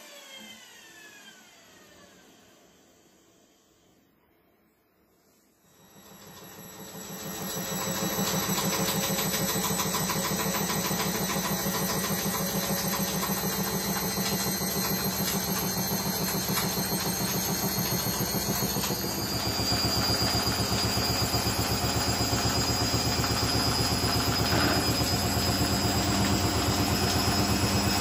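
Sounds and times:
washing machine spinning: 5.7 - 28.0.

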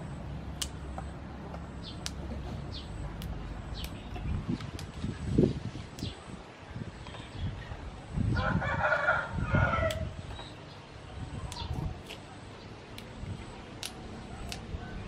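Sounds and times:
rooster crowing: 8.3 - 10.2.

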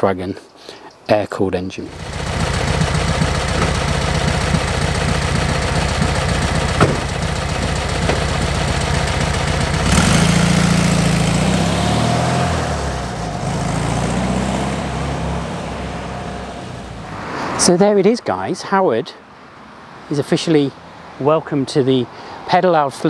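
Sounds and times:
car engine idling: 1.9 - 17.2
car engine revving and driving off: 1.9 - 17.6.

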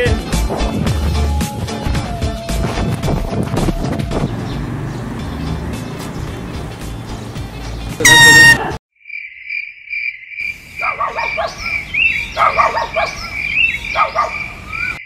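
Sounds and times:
chirping sounds: 3.3 - 8.6, 10.4 - 15.0
air horn blast: 8.0 - 8.8.

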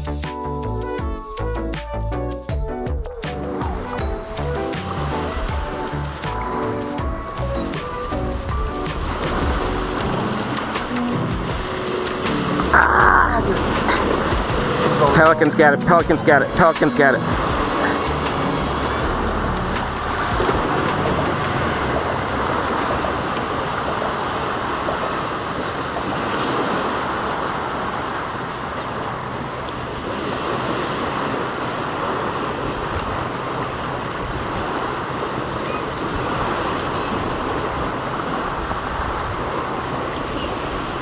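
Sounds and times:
wind on microphone: 0.0 - 41.0
surf rushing: 3.0 - 41.0
faint high chirps: 6.4 - 8.5.

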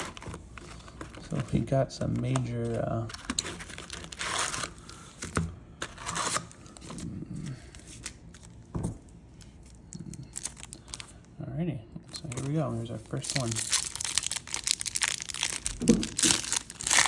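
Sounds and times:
foil packs crinkling: 0.0 - 5.1, 9.3 - 11.3, 12.1 - 17.0.

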